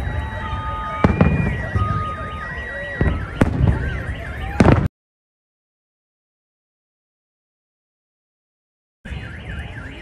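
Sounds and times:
fireworks bursting with bangs: 0.0 - 2.4, 3.0 - 4.9
car alarm warbling: 0.0 - 4.9, 9.0 - 10.0.

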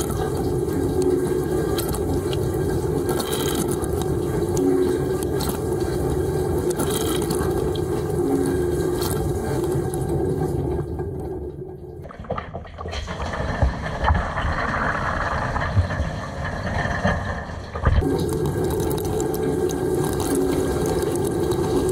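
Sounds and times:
water spraying in dishwasher: 0.0 - 10.9, 18.0 - 21.9
low pump hum: 0.0 - 12.3, 17.8 - 21.9.

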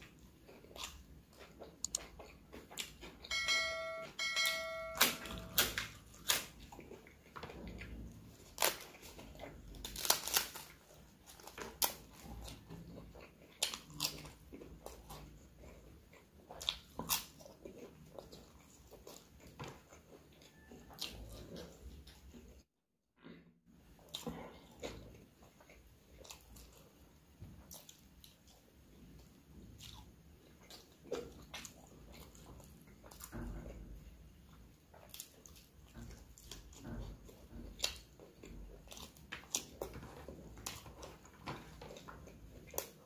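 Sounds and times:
crunching and wet chewing: 0.0 - 3.4, 5.3 - 22.7, 23.8 - 43.0
lip smacks and mouth clicks: 0.5 - 3.2.

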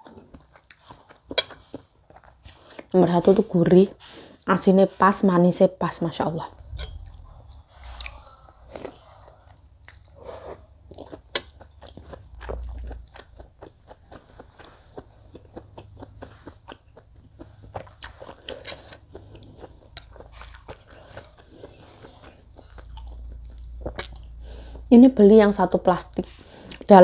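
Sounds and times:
chewing with wet mouth clicks: 0.0 - 3.0, 6.6 - 10.2, 10.8 - 24.8.

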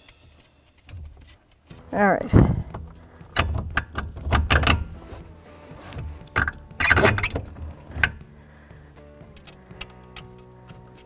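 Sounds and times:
plastic parts clunking and rattling: 0.0 - 8.4.

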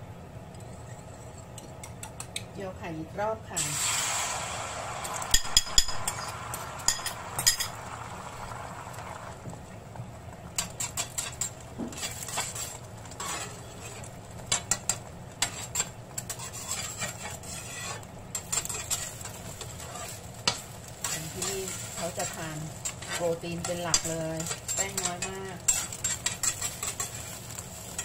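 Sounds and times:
egg sizzling in oil: 3.5 - 28.0
spatula scraping and tapping pan: 5.3 - 7.8, 10.5 - 28.0.

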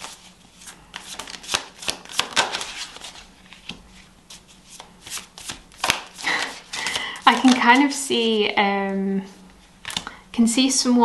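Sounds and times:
cards being shuffled: 0.0 - 8.2, 9.8 - 10.1.

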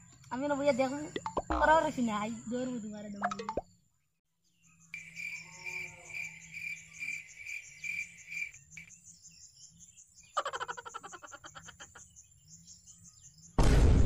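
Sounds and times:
frog repeated call: 1.1 - 1.8
fast rattling frog croak: 1.2 - 1.8
high insect buzz: 5.0 - 9.4.

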